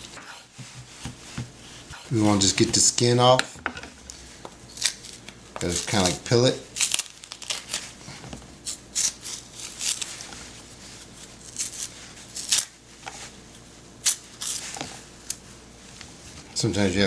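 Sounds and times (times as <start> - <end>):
banana peel snapping and ripping: 4.7 - 6.2, 6.8 - 8.0, 8.6 - 10.3, 11.5 - 12.8, 14.0 - 14.6.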